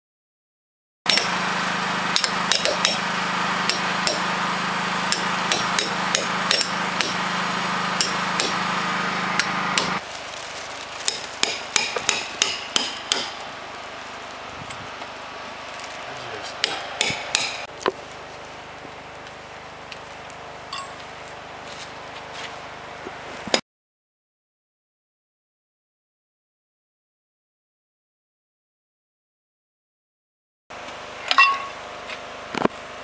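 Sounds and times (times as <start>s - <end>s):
hammer tapping caulking iron: 2.2s - 3.0s, 5.1s - 7.2s, 11.1s - 13.3s, 16.6s - 17.6s.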